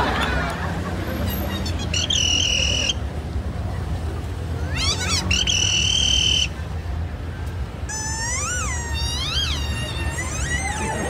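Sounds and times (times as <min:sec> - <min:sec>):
low traffic rumble: 0:00.0 - 0:11.0
high squeaky whistles: 0:04.9 - 0:06.5, 0:07.9 - 0:11.0.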